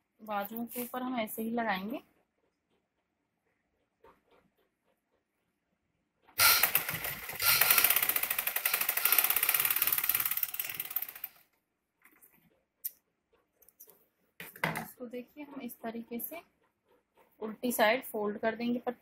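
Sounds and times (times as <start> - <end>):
sewing machine stitching: 6.4 - 11.5.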